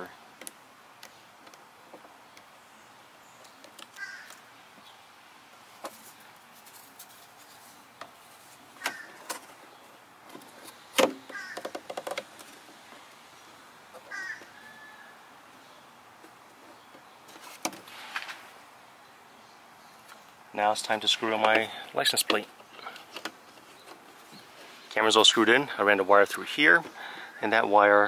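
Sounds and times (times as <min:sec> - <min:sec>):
bird calls: 0:02.2 - 0:05.1, 0:08.7 - 0:18.4, 0:26.6 - 0:28.0.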